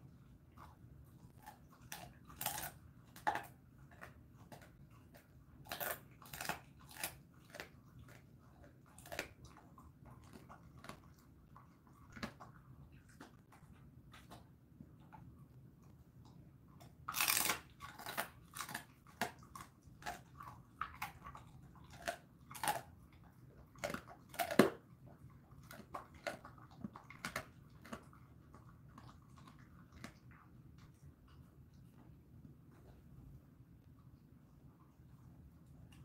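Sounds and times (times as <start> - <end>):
dog crunching bone: 0.6 - 15.1, 16.8 - 31.0.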